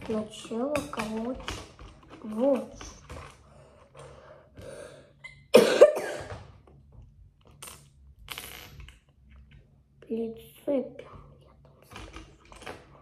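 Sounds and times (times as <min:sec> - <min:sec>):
boy coughing: 0:05.2 - 0:06.3.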